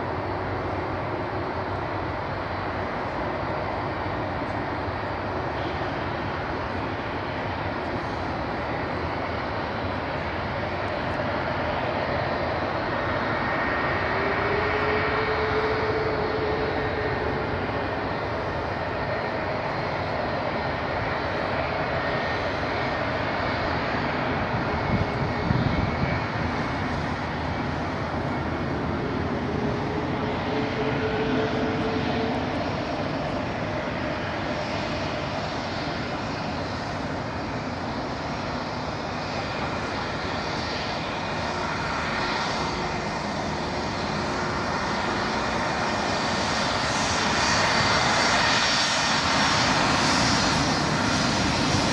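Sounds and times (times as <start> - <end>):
faint engine whine: 0.0 - 51.9
jet engines roaring: 0.0 - 51.9.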